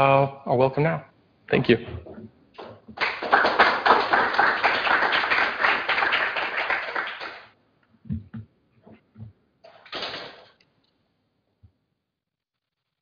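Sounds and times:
audience applauding: 2.6s - 7.6s.

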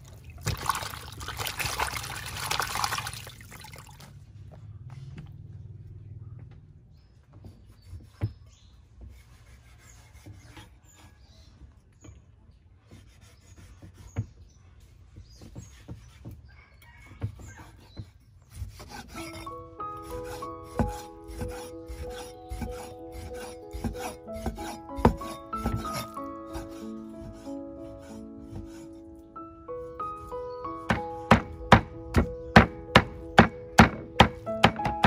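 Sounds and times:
cleaver scraping through meat: 7.6s - 11.3s, 17.4s - 29.0s
background music: 19.0s - 35.0s
blade knocking on wooden board: 20.7s - 22.9s, 23.8s - 26.7s, 30.9s - 35.0s.

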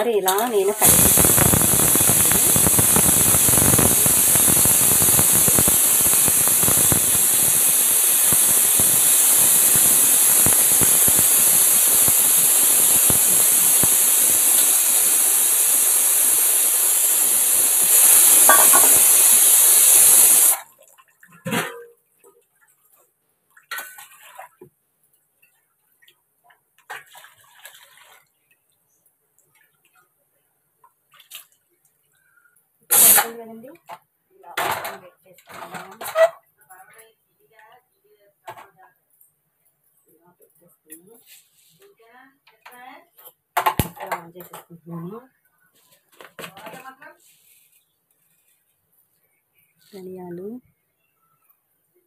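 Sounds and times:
water running from a tap: 0.3s - 20.6s.

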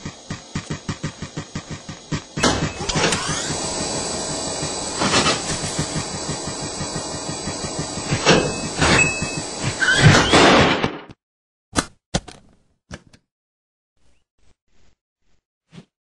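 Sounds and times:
feet thumping on treadmill belt: 0.0s - 3.3s
whirring hiss with rising whine: 0.0s - 10.0s.

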